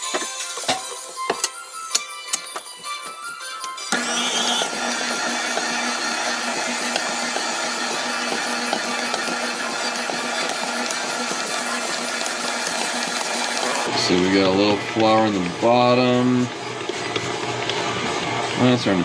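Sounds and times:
stand mixer motor whirring: 3.9s - 19.0s.

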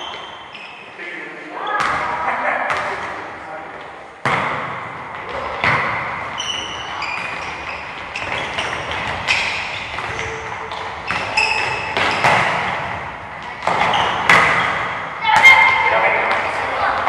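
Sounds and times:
high-pitched squeaks: 6.4s - 12.3s.

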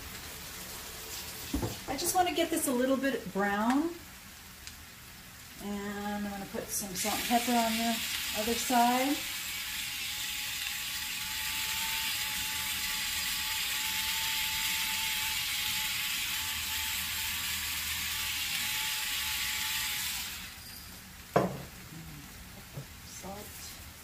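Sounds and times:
electric pepper grinder whirring: 7.0s - 20.6s.

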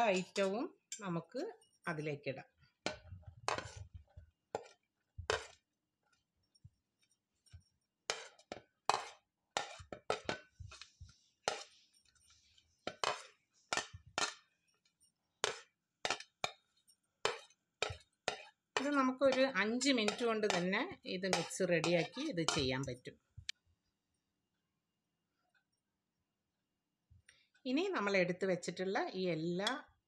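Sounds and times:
metal spoon scraping plate and bowl: 2.9s - 3.9s, 7.4s - 22.8s.

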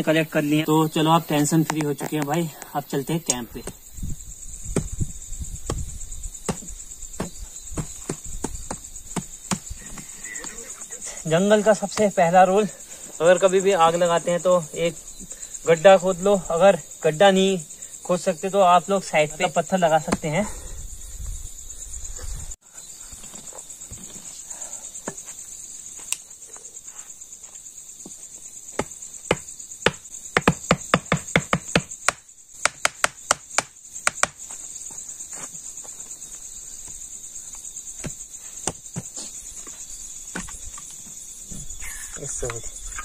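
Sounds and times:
crickets chirring: 0.0s - 43.0s
sharp knocks: 4.7s - 5.0s, 5.6s - 10.1s, 28.8s - 34.4s.

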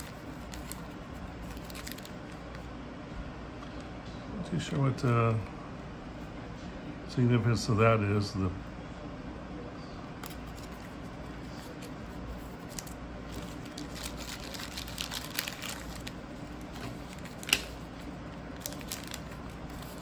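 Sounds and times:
faint low hum: 0.0s - 20.0s
cards and plastic clicking: 12.7s - 17.8s.

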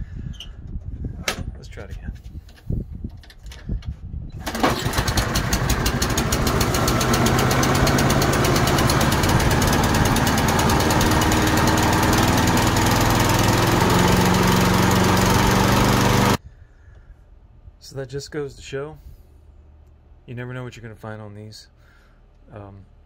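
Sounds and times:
lawn mower engine running: 4.4s - 16.4s.

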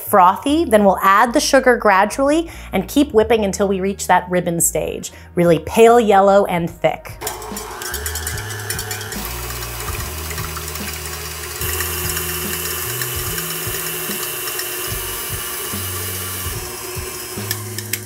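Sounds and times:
background music with slow bass: 0.1s - 18.0s
stand mixer motor whirring: 7.2s - 18.0s.

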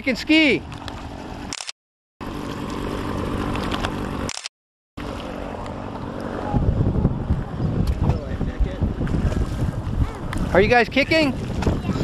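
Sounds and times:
wind on microphone: 6.0s - 12.0s.

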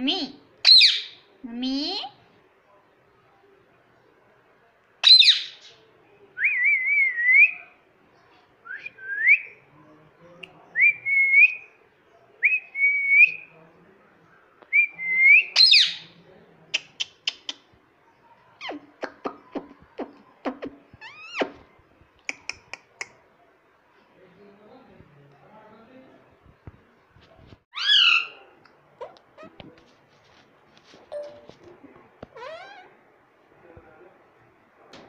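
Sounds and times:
parakeet squawk: 27.7s - 28.4s, 32.4s - 32.9s.

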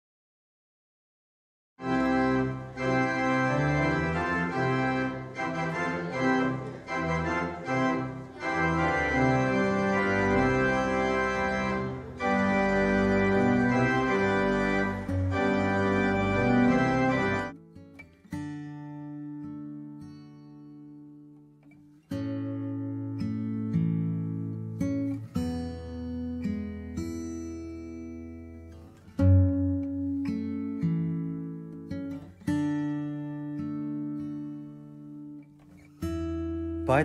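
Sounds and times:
organ playing sustained chords: 1.8s - 17.6s.

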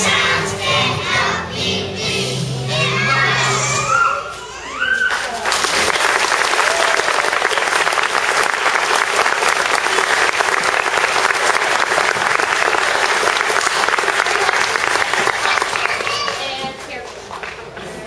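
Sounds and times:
audience applauding: 5.0s - 16.6s.

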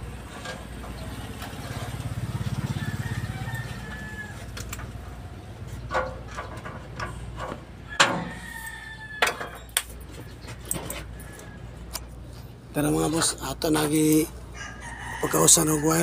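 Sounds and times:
metallic knocks and clanks: 4.5s - 8.6s, 9.2s - 11.2s.

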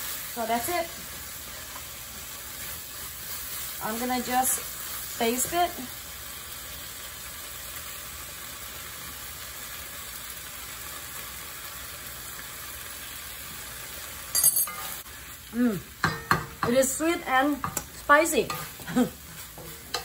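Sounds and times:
meat sizzling in a wok: 0.0s - 20.0s
spatula scraping a pan: 18.3s - 20.0s.

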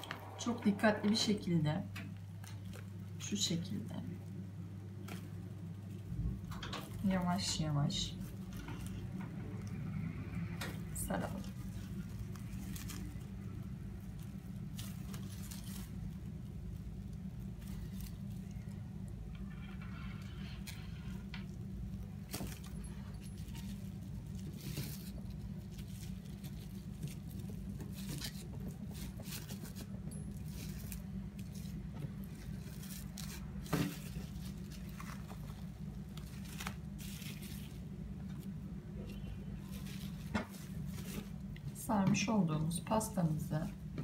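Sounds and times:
low hum: 0.0s - 44.0s
cling film crinkling: 11.1s - 41.8s.

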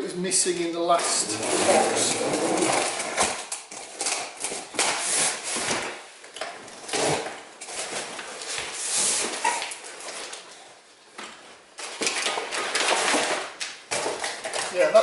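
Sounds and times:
knife slitting packing tape: 1.2s - 5.7s.

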